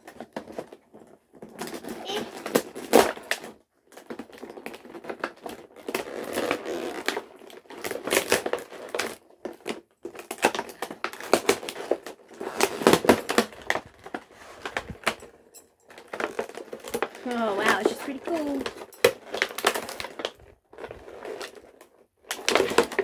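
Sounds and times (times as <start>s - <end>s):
packaging rustling and crinkling: 0.0s - 23.0s.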